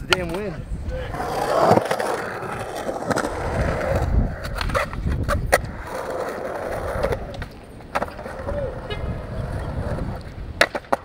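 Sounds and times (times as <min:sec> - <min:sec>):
skateboard clacking on ground: 0:00.0 - 0:11.0
skateboard wheels rolling on concrete: 0:00.0 - 0:11.0.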